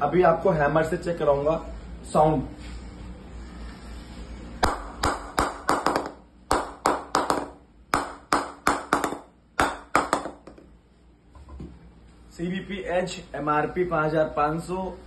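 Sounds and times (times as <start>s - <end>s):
mallet knocking on cricket bat: 4.6s - 10.7s.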